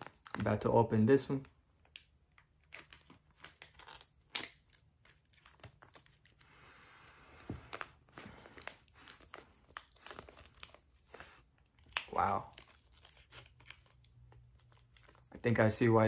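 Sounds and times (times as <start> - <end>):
pouch crinkling: 1.9 - 15.4
pouch tearing: 2.6 - 6.4.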